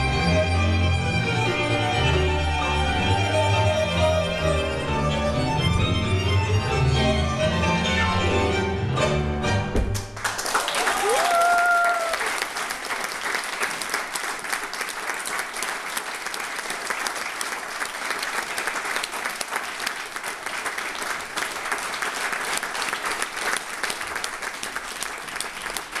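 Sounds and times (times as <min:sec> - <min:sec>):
audience applauding: 0:10.0 - 0:26.0.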